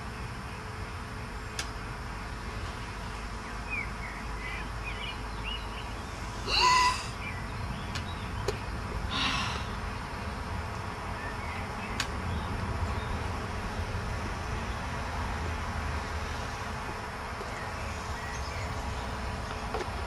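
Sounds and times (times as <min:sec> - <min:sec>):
breathy rush: 0:06.4 - 0:07.2, 0:09.1 - 0:09.8
loud pitched bird call: 0:06.4 - 0:07.4.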